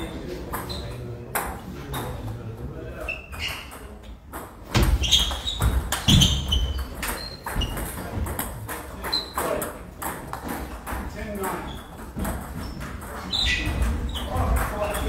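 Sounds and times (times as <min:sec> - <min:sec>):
table tennis balls clicking: 0:03.2 - 0:15.0.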